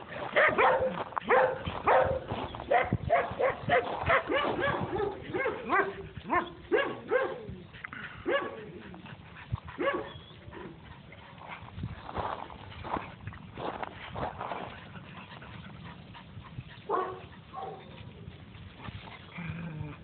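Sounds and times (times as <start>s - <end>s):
dogs barking: 0.0s - 7.6s, 8.2s - 8.9s, 9.8s - 10.8s, 16.8s - 18.0s.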